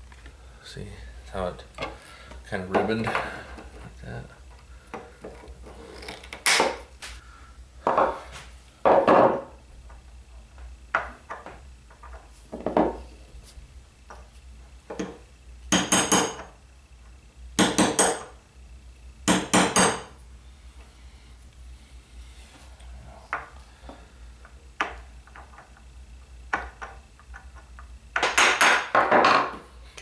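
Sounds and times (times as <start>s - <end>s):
hammer tapping metal: 15.7s - 16.5s, 19.3s - 20.1s.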